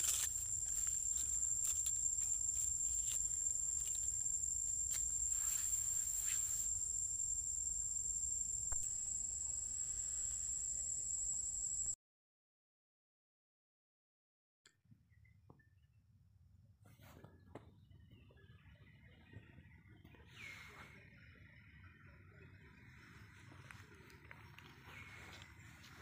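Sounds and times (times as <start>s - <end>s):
high-pitched insect drone: 0.0s - 12.0s.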